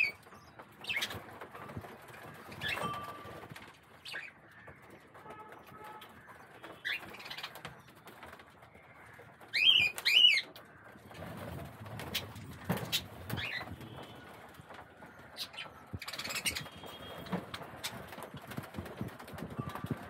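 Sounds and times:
sharp bird calls: 0:02.1 - 0:18.8
budgerigars chirping: 0:15.2 - 0:17.2.

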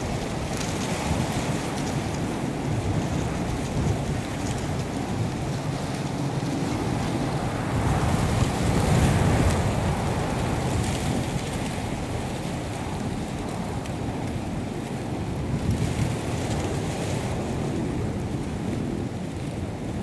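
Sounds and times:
wind blowing: 0:00.0 - 0:20.0.

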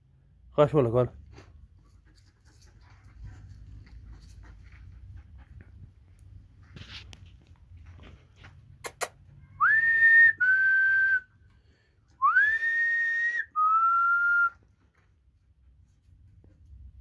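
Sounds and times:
sharp clicks: 0:08.8 - 0:09.2
person whistling two-note call: 0:09.6 - 0:11.2, 0:12.2 - 0:14.6.

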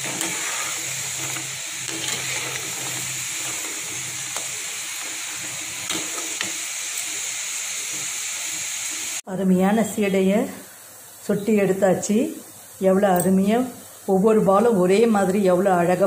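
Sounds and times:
dough frying in hot oil: 0:00.0 - 0:09.3.

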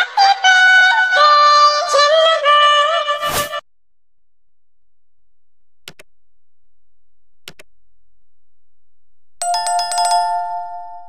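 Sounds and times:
mouse clicks: 0:05.8 - 0:06.1, 0:07.4 - 0:07.7
bright bell chime: 0:09.4 - 0:11.0.

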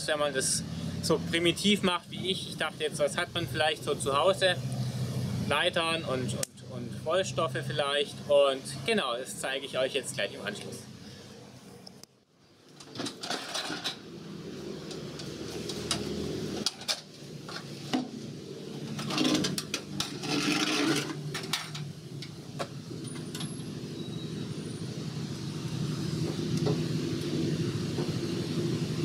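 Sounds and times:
low rumble of traffic: 0:00.0 - 0:29.0
metal tins knocking and scraping: 0:18.8 - 0:21.9.

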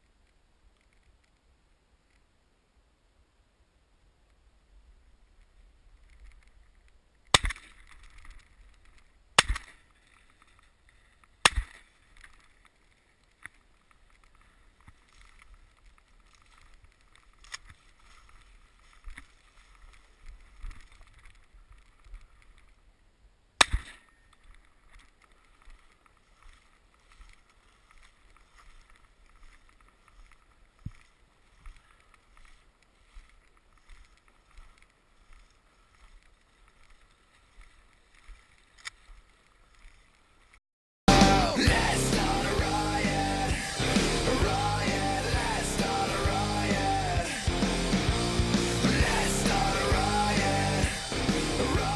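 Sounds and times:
faint background noise: 0:00.0 - 0:40.6.

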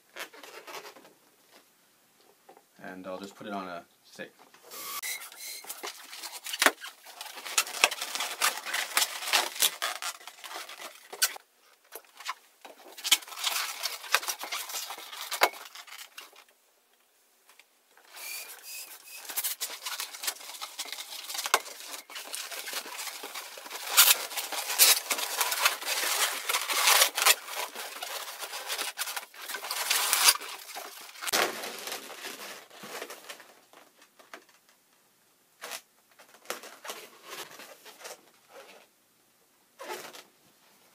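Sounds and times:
rubber balloons squeaking: 0:04.7 - 0:07.0, 0:18.0 - 0:19.8, 0:23.8 - 0:25.7.

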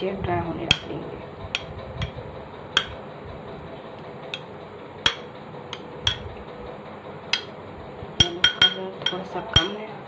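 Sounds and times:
metal spoon clinking on glass bowl: 0:02.8 - 0:03.0, 0:05.1 - 0:06.3, 0:08.2 - 0:09.8.

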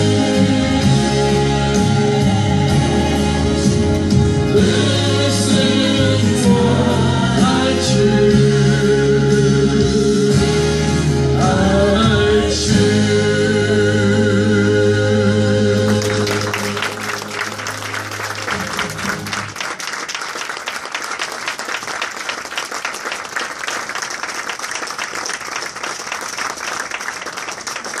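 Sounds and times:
congregation applauding: 0:15.7 - 0:28.0.

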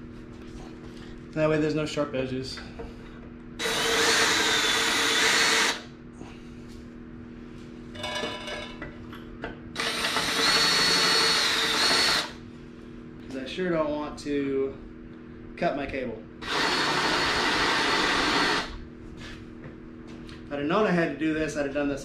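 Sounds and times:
cordless drill whining on steel: 0:03.6 - 0:05.8, 0:09.8 - 0:12.4, 0:16.4 - 0:18.7.

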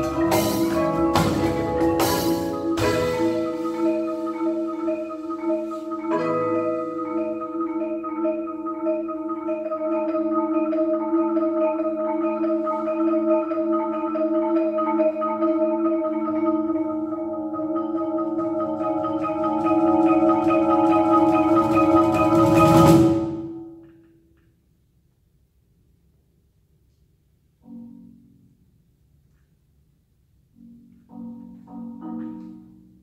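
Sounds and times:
marimbas and vibraphones playing: 0:00.0 - 0:24.1, 0:30.6 - 0:33.0.

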